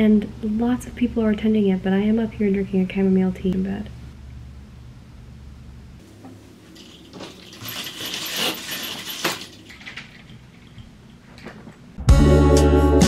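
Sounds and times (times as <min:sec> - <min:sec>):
curtain sliding along rail: 0:06.8 - 0:10.8.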